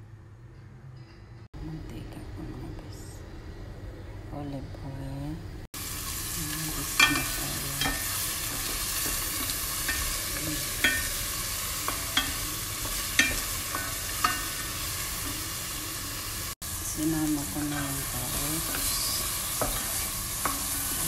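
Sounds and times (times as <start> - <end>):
vegetables sizzling in a pan: 5.8 - 21.0
wooden spoon knocking on pan: 7.0 - 11.2, 11.8 - 14.6, 19.5 - 20.9.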